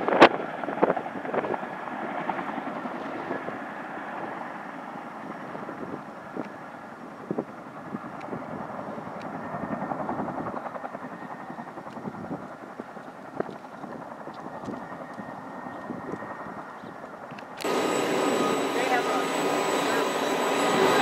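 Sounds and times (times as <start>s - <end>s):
helicopter rotors chopping: 0.0s - 21.0s
rotor wash rushing: 17.6s - 21.0s.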